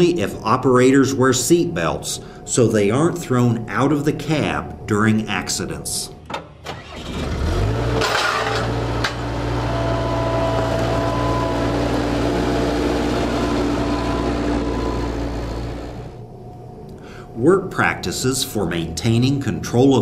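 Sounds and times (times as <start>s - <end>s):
diesel engine running: 6.7s - 16.3s.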